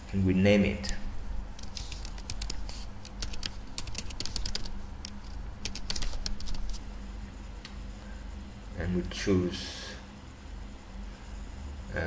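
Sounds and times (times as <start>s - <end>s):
computer keyboard typing: 1.6s - 6.8s.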